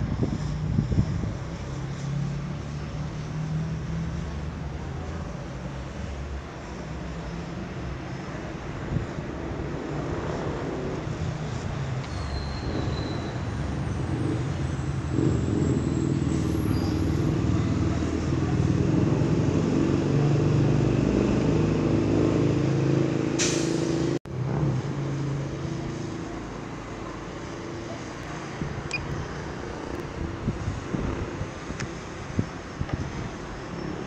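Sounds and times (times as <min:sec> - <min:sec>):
short sharp hiss: 0:23.4 - 0:24.1.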